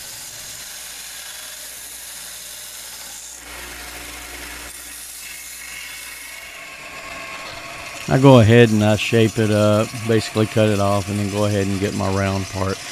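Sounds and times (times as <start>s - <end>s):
belt sander grinding metal: 0.0s - 12.9s.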